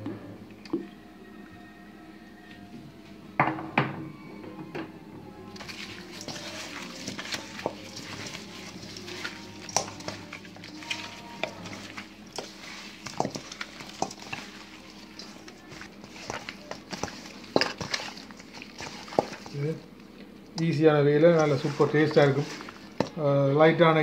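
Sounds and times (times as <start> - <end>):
meat squelching: 5.5 - 23.2
ribs knocking against metal bowl: 5.6 - 19.6.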